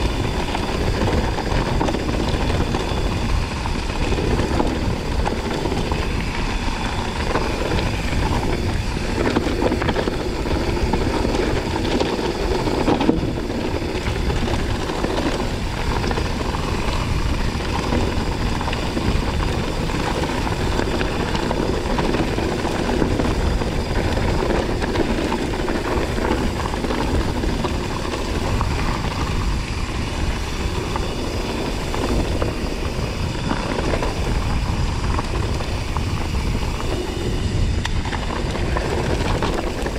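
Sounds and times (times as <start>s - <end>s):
bike tyres crunching over gravel: 0.0s - 39.9s
wind buffeting microphone: 0.0s - 39.9s.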